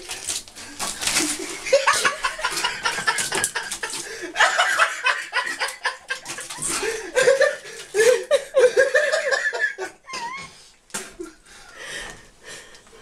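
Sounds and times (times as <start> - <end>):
packets and bottles clattering: 0.0 - 4.3, 5.6 - 7.9
people chuckling and laughing: 1.2 - 11.4.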